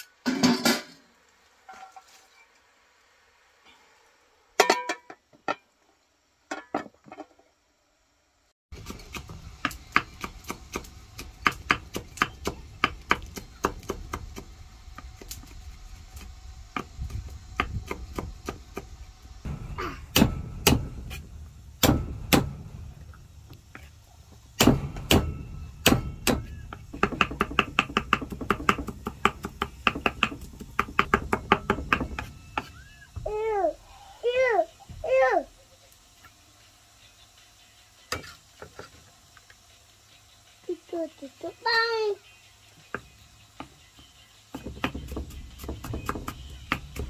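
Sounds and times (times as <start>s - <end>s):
knife chopping on wooden block: 44.6s - 47.0s.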